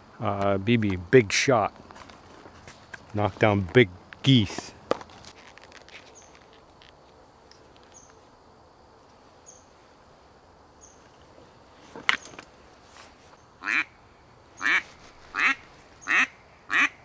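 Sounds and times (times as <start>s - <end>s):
duck call quack: 13.6s - 13.9s, 14.6s - 17.0s.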